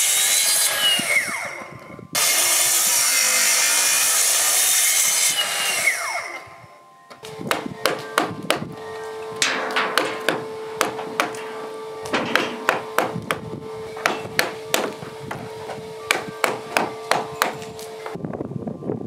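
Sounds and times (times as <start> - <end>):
mallet striking chisel into wood: 7.5 - 8.6, 9.7 - 11.4, 12.1 - 13.4, 14.0 - 15.4, 16.1 - 17.6.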